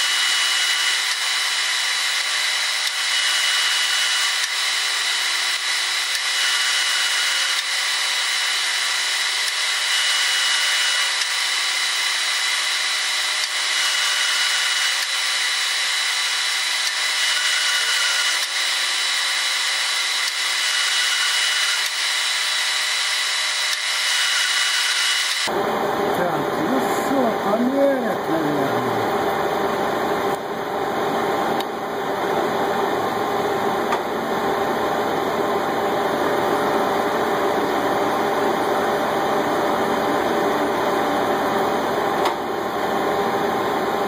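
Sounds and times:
metal lathe machining steel: 0:00.0 - 0:25.5.

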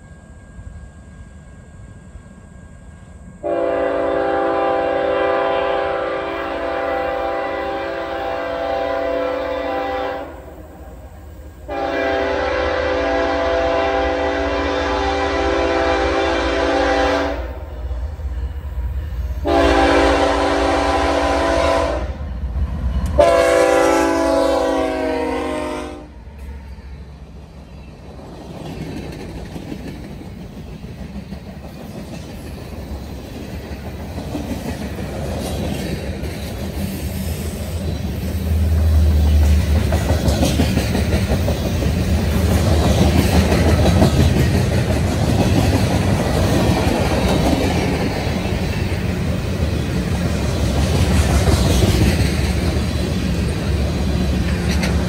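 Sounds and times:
train rumbling past: 0:00.0 - 0:55.0
locomotive air horn chord: 0:03.4 - 0:10.5, 0:11.6 - 0:17.6, 0:19.4 - 0:22.2, 0:23.2 - 0:26.2
wheels clicking over rail joints: 0:39.5 - 0:55.0.

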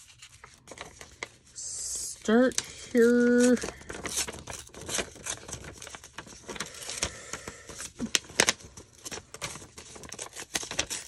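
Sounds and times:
paper tearing by hand: 0:09.9 - 0:11.0.

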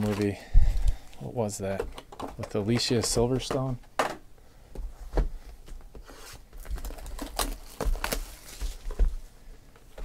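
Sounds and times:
packaging crinkling: 0:00.0 - 0:01.0, 0:06.2 - 0:09.0.

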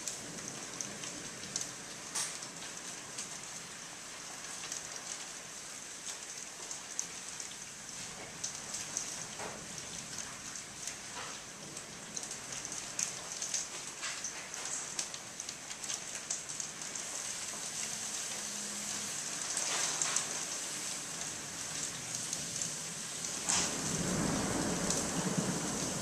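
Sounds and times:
raindrops ticking close by: 0:00.0 - 0:26.0
steady rain: 0:00.0 - 0:26.0
thunder rumbling: 0:23.2 - 0:26.0.

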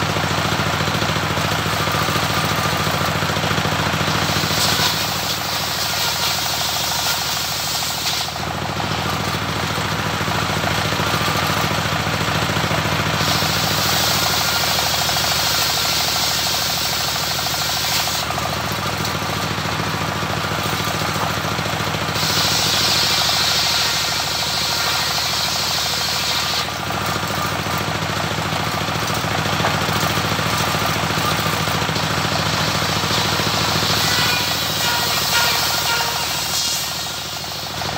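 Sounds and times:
diesel engine knocking: 0:00.0 - 0:07.7, 0:08.3 - 0:25.1, 0:25.9 - 0:36.3
saw blade hissing through wood: 0:04.2 - 0:08.4, 0:13.2 - 0:18.3, 0:22.1 - 0:26.8, 0:32.2 - 0:37.9.

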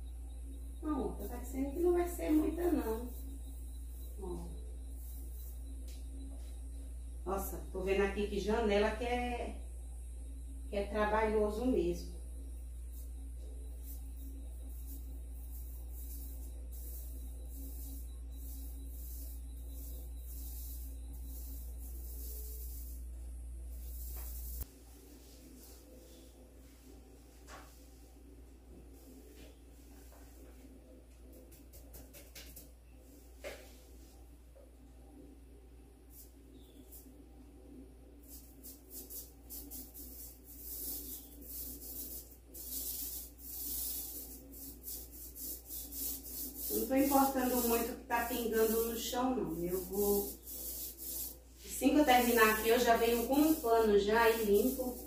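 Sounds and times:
low hum: 0:00.0 - 0:31.9, 0:32.7 - 0:38.6
paint roller rasping: 0:14.7 - 0:23.0, 0:39.0 - 0:55.0.

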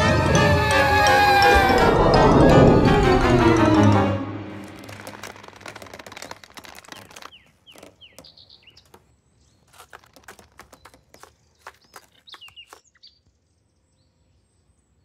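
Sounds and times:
light clicks and scratches: 0:05.0 - 0:12.8.

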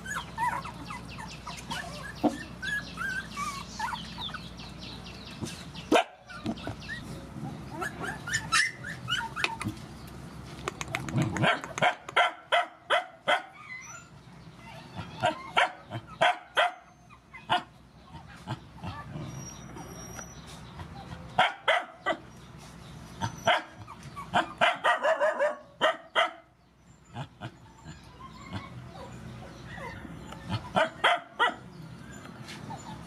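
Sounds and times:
dogs barking: 0:05.8 - 0:07.0, 0:11.0 - 0:13.6, 0:14.9 - 0:19.6, 0:20.8 - 0:22.3, 0:23.2 - 0:33.0.

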